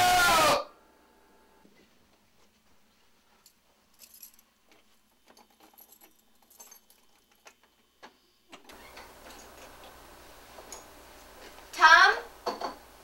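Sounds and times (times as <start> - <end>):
room noise hiss: 0.0 - 13.0
faint light clicks and clinks: 3.3 - 7.8.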